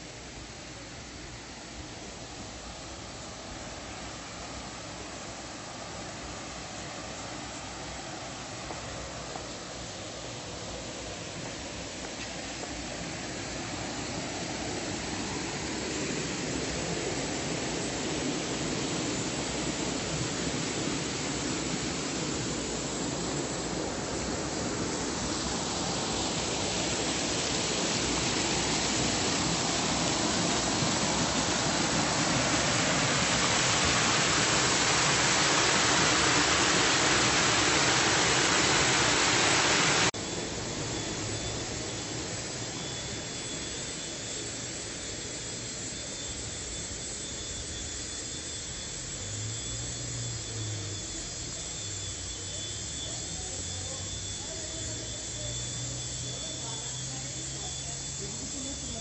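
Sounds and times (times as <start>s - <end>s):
rushing river water: 23.4s - 40.2s.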